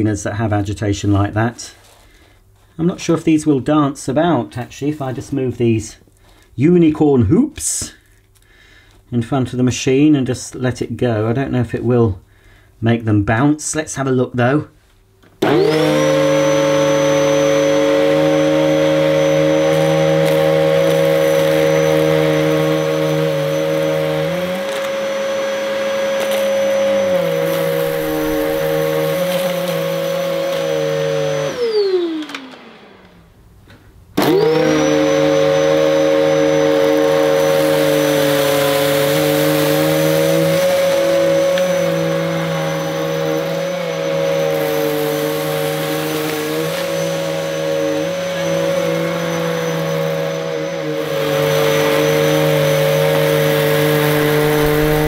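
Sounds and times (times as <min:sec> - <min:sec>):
vacuum cleaner running on carpet: 0:15.4 - 0:33.3, 0:34.2 - 0:55.0.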